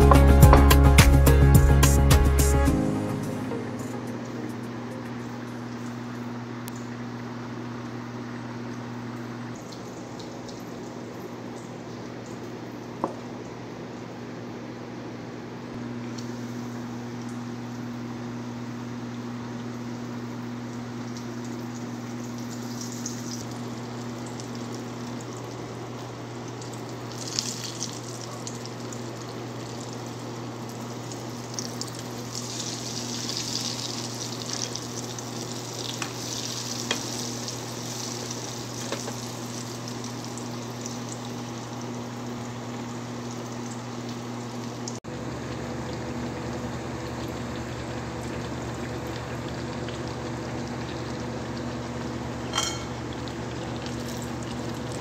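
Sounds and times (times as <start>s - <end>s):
steady low hum: 0.0s - 26.0s
eggplant sizzling in oil: 19.4s - 45.0s.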